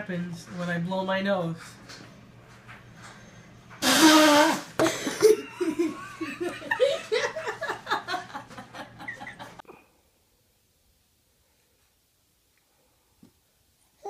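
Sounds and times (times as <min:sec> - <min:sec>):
person blowing nose: 0:03.8 - 0:05.2
person laughing: 0:04.8 - 0:09.6.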